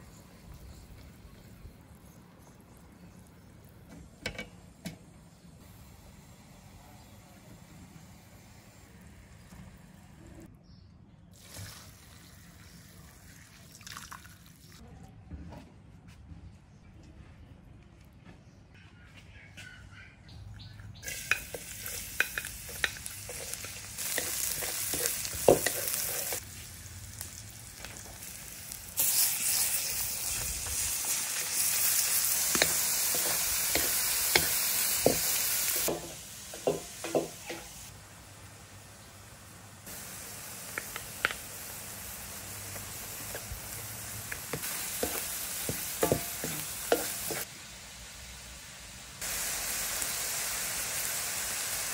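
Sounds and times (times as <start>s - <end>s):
food sizzling in a hot pan: 21.0s - 51.9s.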